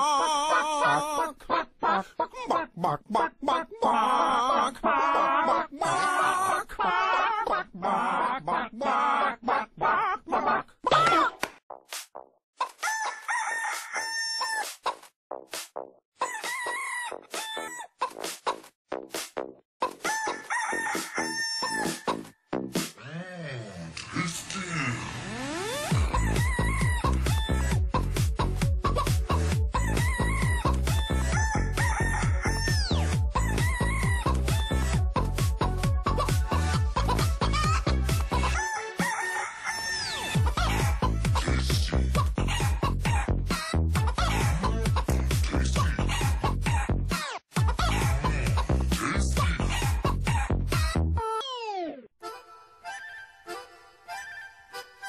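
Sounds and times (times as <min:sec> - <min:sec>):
sampled chicken clucks and crowing: 0:00.0 - 0:11.2, 0:12.6 - 0:15.1, 0:16.2 - 0:18.6, 0:19.8 - 0:22.3, 0:29.8 - 0:34.9, 0:36.1 - 0:41.0
rooster crowing: 0:12.8 - 0:14.6, 0:16.2 - 0:17.9, 0:20.0 - 0:22.1, 0:30.0 - 0:34.2, 0:38.5 - 0:40.5
dance music beat: 0:18.2 - 0:19.6, 0:25.9 - 0:39.1, 0:40.3 - 0:51.1.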